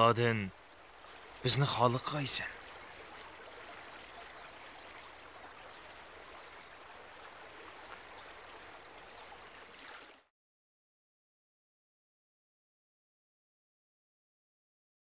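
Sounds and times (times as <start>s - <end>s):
stream running over rocks: 0.0s - 10.3s.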